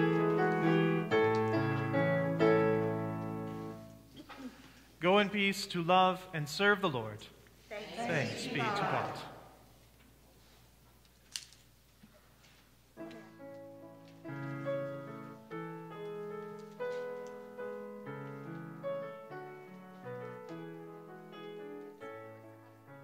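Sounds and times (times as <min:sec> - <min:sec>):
slow piano piece: 0:00.0 - 0:04.6, 0:12.8 - 0:23.0.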